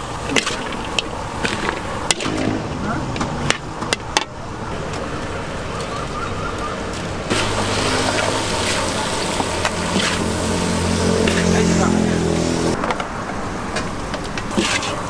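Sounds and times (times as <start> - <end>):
stirring and frying: 0.0 - 4.2, 6.9 - 12.8, 14.5 - 15.0
vehicle engine hum: 0.0 - 15.0.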